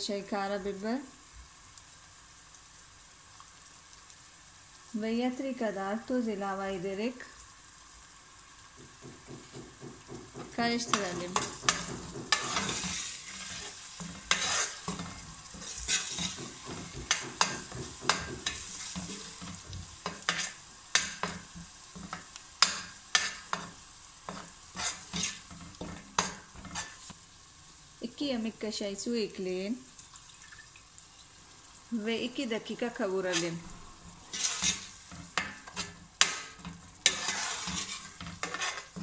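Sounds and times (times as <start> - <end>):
food sizzling in oil: 0.0 - 39.0
metal spoon scraping a pot: 10.8 - 21.4, 22.0 - 27.0, 33.2 - 33.7, 34.3 - 39.0.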